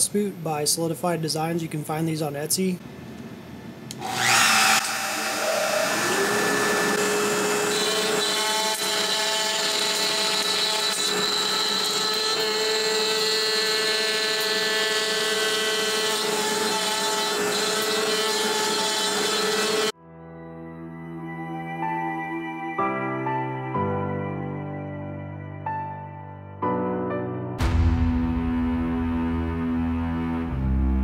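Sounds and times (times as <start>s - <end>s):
router spindle whining: 3.9s - 19.9s
router bit cutting wood: 4.0s - 19.9s.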